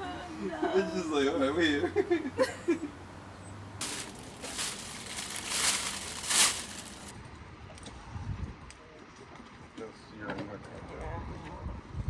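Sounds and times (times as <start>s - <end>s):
plastic bags rustling: 3.8s - 7.1s.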